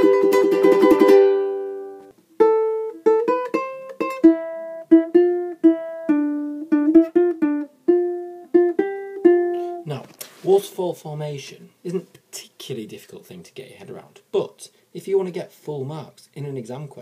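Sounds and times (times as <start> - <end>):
ukulele chord strummed: 0.0 - 9.9
ukulele melody picked: 0.0 - 10.0.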